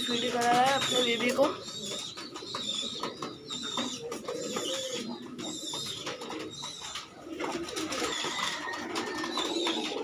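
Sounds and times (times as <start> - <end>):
pigeons cooing: 0.0 - 10.0
wings flapping: 5.9 - 10.0.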